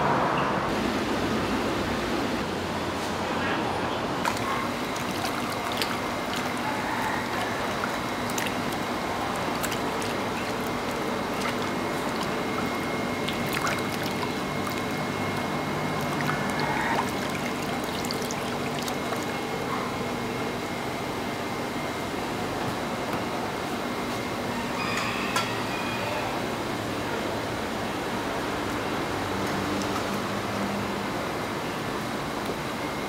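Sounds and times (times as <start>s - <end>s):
water splashing on steel table: 4.2s - 19.5s.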